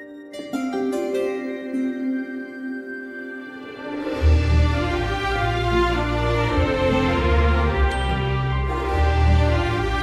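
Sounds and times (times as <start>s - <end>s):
orchestral music with deep bass: 2.6s - 10.0s.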